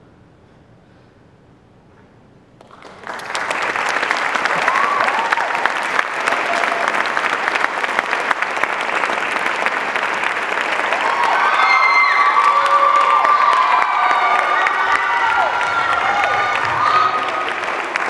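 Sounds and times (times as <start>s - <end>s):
audience applause: 2.6s - 18.0s
whoops and cheers: 4.5s - 7.0s, 10.9s - 17.7s.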